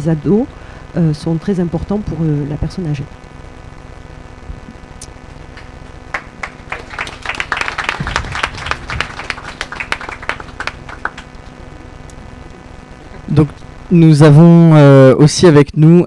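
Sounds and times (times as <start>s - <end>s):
audience applauding: 5.5s - 11.6s.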